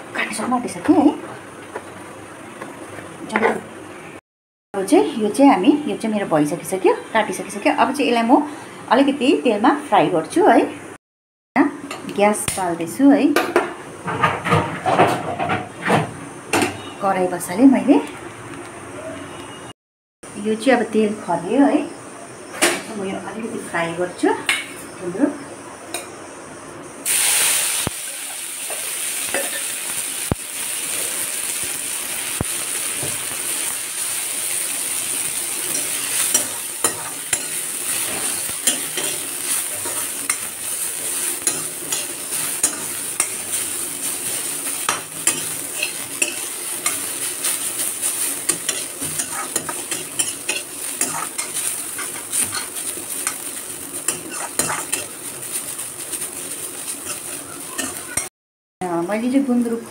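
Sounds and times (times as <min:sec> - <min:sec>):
greens sizzling in hot oil: 0:27.0 - 0:58.3
steel spoon scraping pan: 0:35.7 - 0:43.6, 0:44.8 - 0:53.5, 0:54.1 - 0:55.2.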